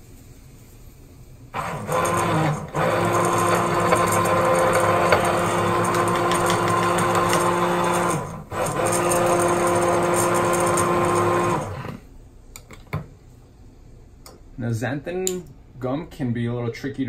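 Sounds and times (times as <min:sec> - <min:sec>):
immersion blender motor hum: 0:01.6 - 0:12.0.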